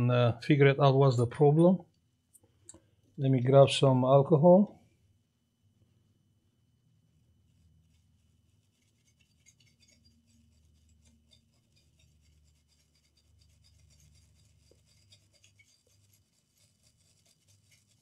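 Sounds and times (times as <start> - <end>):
small brush scrubbing: 7.0 - 18.0.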